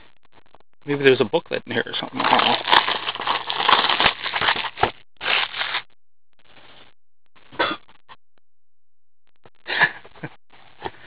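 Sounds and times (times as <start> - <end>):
cardboard box rustling and scraping: 2.1 - 5.8.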